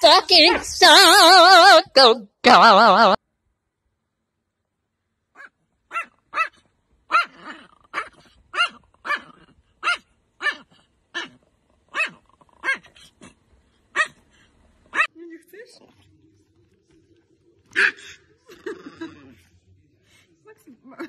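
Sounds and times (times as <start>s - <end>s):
small dog barking high: 5.4s - 13.0s, 13.9s - 14.2s.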